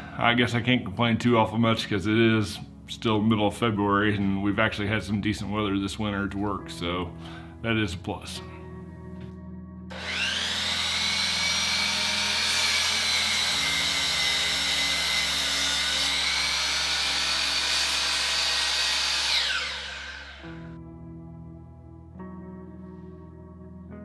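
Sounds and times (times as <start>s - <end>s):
miter saw whining and cutting wood: 9.9s - 20.8s.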